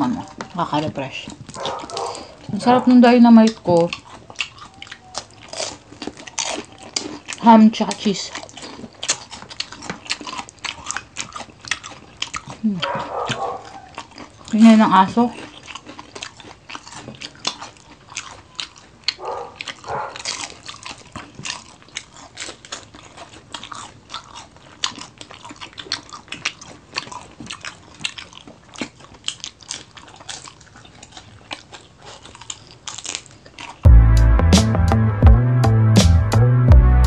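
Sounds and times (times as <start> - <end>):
chewing and crunching food: 0.0 - 33.9
mouth clicks: 1.4 - 14.6.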